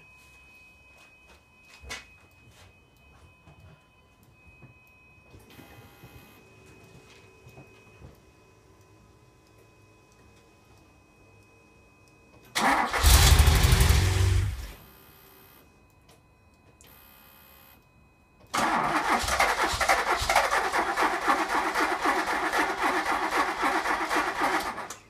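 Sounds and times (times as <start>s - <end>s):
engine cranking: 12.6s - 14.6s, 18.6s - 24.9s
engine starting burst: 12.6s - 14.7s, 18.6s - 24.9s.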